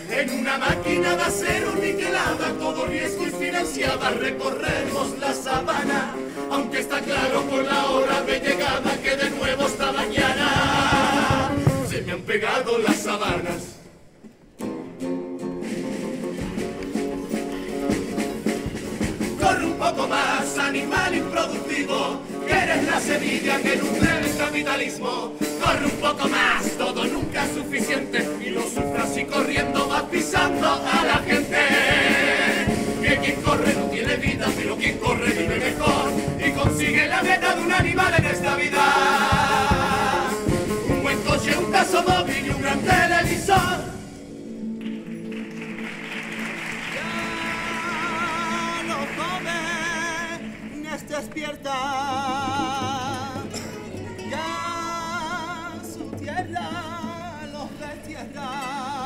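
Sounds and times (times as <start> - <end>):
men's choir singing in harmony: 0.0 - 13.9, 18.1 - 44.6
guitar accompaniment: 0.0 - 59.0.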